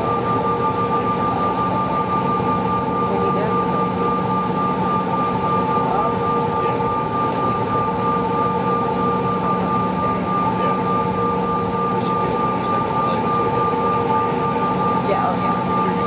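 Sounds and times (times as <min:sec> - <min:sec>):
jet engine whine: 0:00.0 - 0:16.0.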